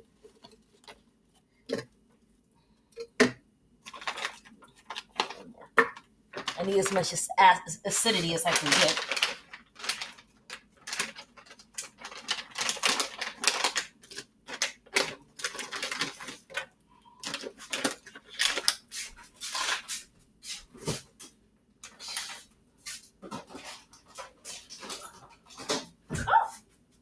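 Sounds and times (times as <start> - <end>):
plastic packaging crinkling: 3.8 - 20.1, 21.8 - 25.8.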